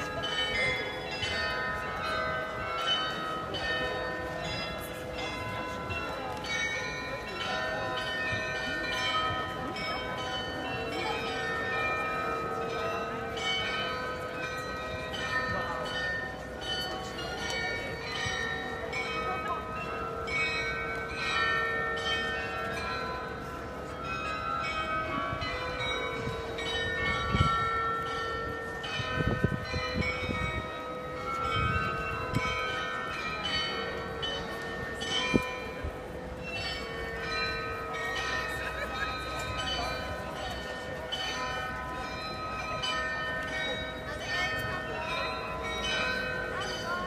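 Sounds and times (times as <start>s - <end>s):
carillon bells playing a melody: 0.0s - 47.0s.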